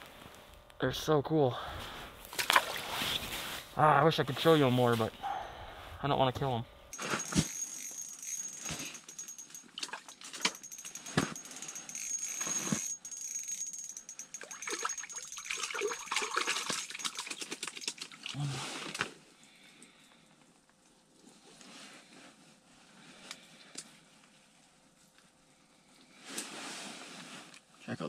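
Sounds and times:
faint high whine: 0.0s - 16.0s.

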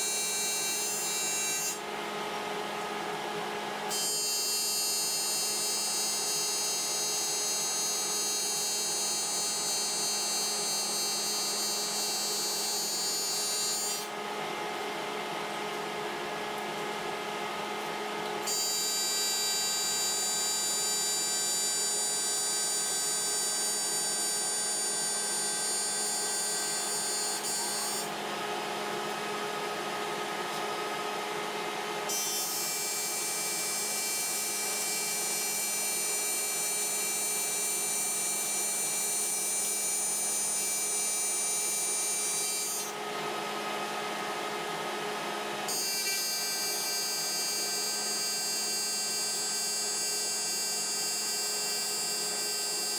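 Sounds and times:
welding arc buzzing: 0.0s - 1.8s, 4.0s - 14.1s, 18.5s - 28.1s, 32.1s - 42.9s, 45.7s - 52.9s.

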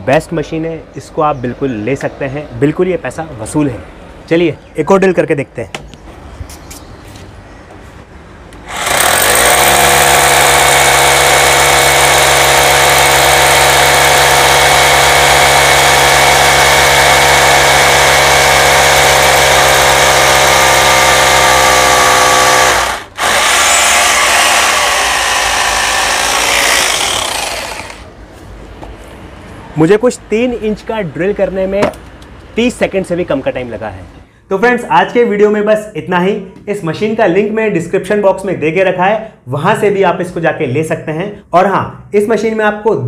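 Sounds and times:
hammer drill boring into concrete: 8.6s - 28.1s.

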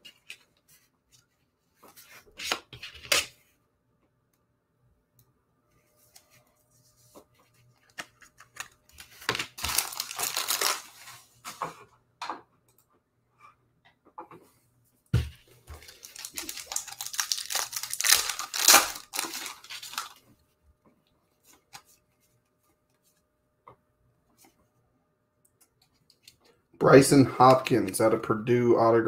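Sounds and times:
cards and sleeves rustling: 5.9s - 11.7s, 15.6s - 20.3s
card packaging tearing: 8.5s - 11.1s, 15.8s - 20.2s.

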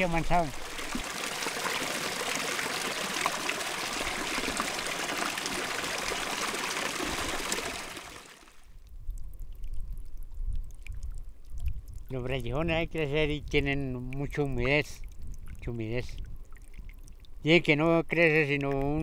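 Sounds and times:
water lapping and splashing: 0.0s - 8.7s.

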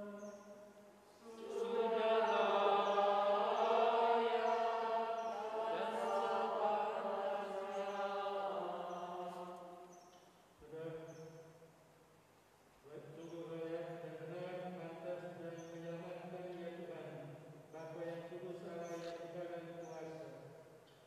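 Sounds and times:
voices singing a slow chant: 0.0s - 11.6s.

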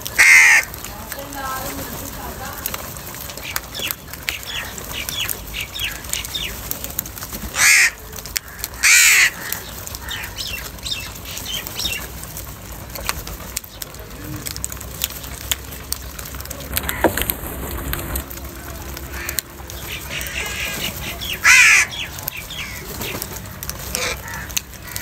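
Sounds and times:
crows cawing: 0.0s - 1.1s, 3.4s - 6.5s, 7.5s - 12.0s, 16.8s - 17.4s, 18.6s - 25.0s
loud harsh crow caws: 0.1s - 0.9s, 7.5s - 10.6s, 16.8s - 17.2s, 19.0s - 23.0s, 23.9s - 25.0s.

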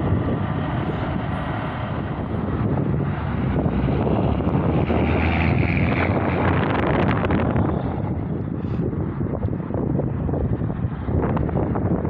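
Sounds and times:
truck passing: 0.0s - 12.0s.

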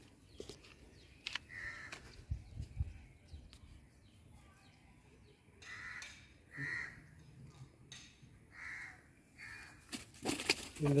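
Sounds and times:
crow cawing: 1.5s - 2.0s, 5.6s - 7.2s, 8.5s - 9.8s.

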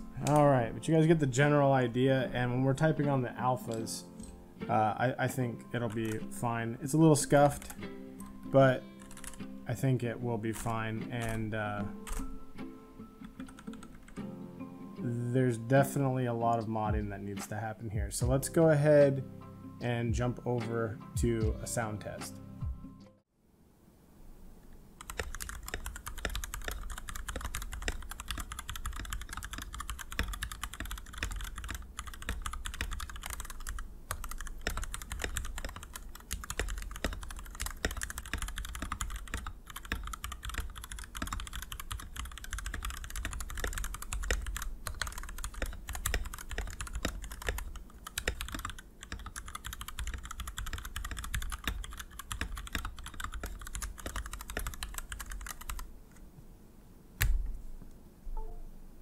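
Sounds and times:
fast mechanical keyboard typing: 0.2s - 0.5s, 5.8s - 6.3s, 7.0s - 7.8s, 9.0s - 9.4s, 11.2s - 11.5s, 12.1s - 12.3s, 13.4s - 14.2s, 25.0s - 55.9s.

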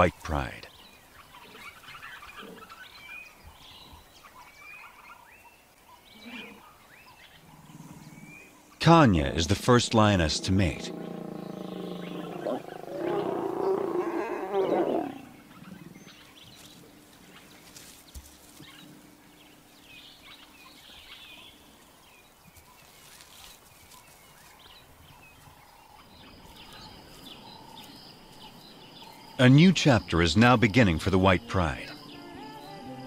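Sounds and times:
lions growling snarl: 9.9s - 16.0s
faint high chirping calls: 10.8s - 17.5s.

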